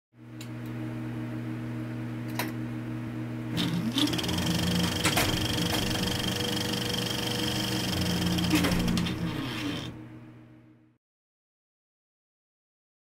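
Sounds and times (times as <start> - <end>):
projector motor hum: 0.2 - 10.9
projector mechanical rattle: 3.6 - 10.1.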